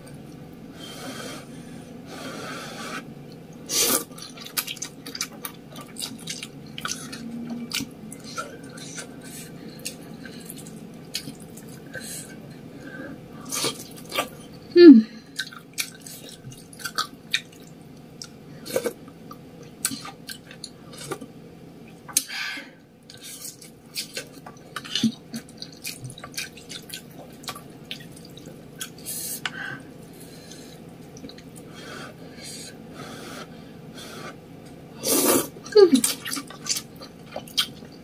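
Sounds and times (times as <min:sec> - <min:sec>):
chewing with mouth clicks: 0:04.0 - 0:12.0, 0:15.3 - 0:21.3, 0:23.0 - 0:29.0, 0:30.4 - 0:31.7, 0:35.6 - 0:38.0.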